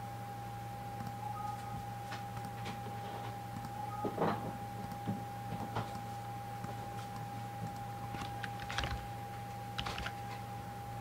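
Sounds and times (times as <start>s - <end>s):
electrical hum with high whine: 0.0s - 11.0s
mouse and keyboard clicks: 7.7s - 9.0s.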